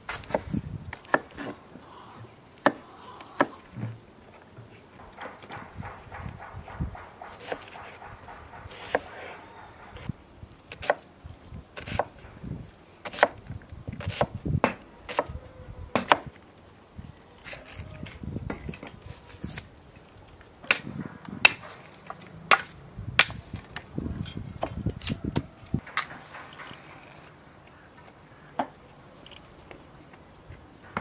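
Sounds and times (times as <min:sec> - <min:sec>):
knife chopping on wooden board: 0:05.0 - 0:10.1.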